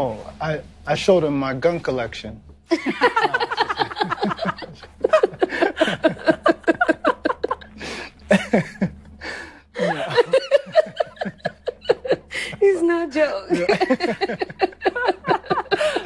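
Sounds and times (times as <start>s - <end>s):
woman laughing hard: 2.7s - 8.9s, 9.8s - 12.8s, 13.5s - 16.0s.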